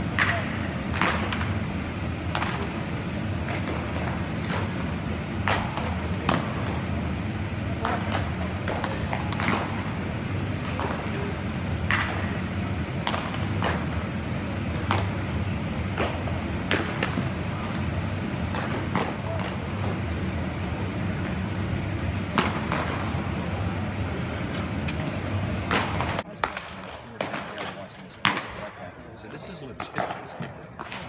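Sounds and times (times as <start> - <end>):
baseballs smacking into mitts: 0.1 - 1.6, 2.3 - 6.8, 7.8 - 20.2, 22.3 - 23.2, 24.8 - 28.6.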